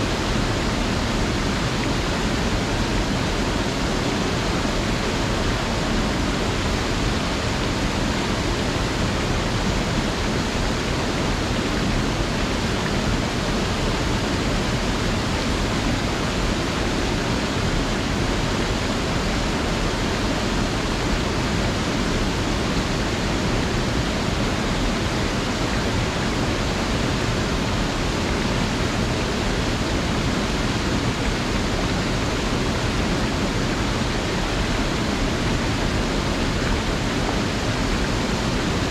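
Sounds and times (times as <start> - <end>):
creek rushing over rocks: 0.0 - 38.9.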